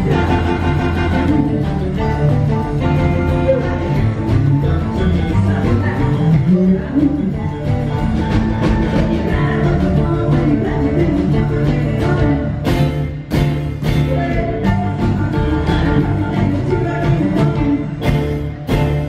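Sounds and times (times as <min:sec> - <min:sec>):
rockabilly band playing: 0:00.0 - 0:19.0.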